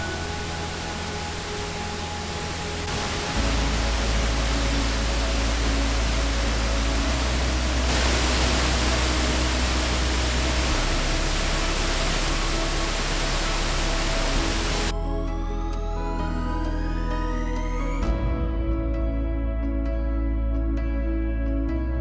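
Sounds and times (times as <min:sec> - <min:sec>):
waterfall roaring: 0:00.0 - 0:14.9
music: 0:00.0 - 0:22.0.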